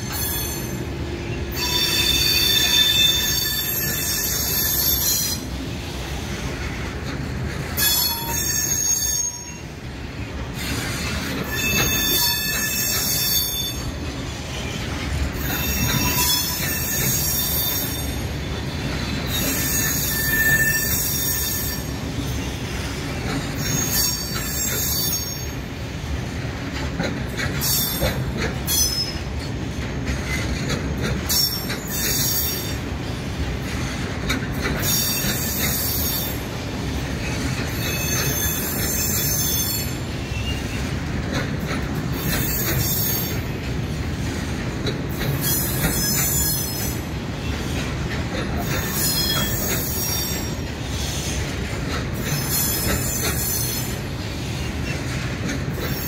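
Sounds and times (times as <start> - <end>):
wheels squealing: 0.0 - 5.5, 10.6 - 14.8, 45.1 - 51.4
train wagons rumbling: 0.0 - 56.0.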